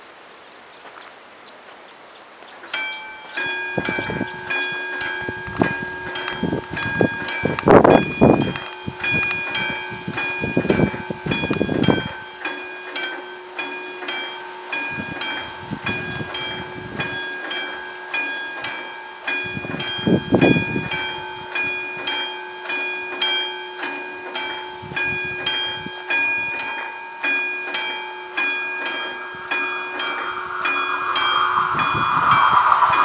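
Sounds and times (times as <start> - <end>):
level-crossing bell ringing: 2.8 - 33.0
low rumble: 28.8 - 33.0.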